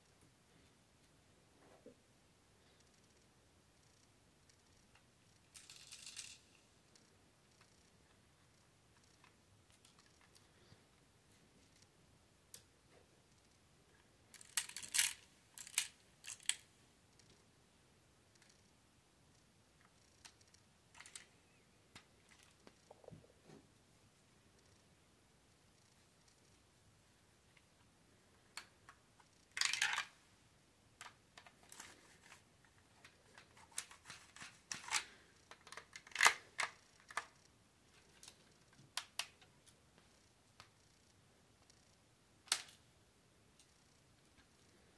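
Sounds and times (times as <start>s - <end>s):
plastic toy parts clicking: 3.8s - 7.9s, 14.3s - 16.6s, 20.0s - 21.3s, 28.6s - 30.1s, 33.0s - 39.8s, 41.6s - 42.8s.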